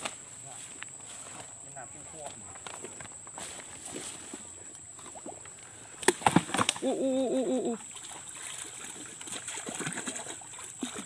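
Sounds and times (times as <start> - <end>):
water sloshing and splashing: 5.0 - 11.0
wavering hoot-like call: 6.8 - 7.8.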